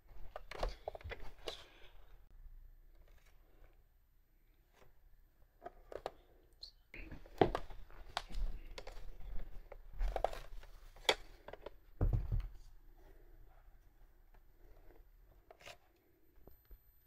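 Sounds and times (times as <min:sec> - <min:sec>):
dull thumps: 0:12.0 - 0:12.6.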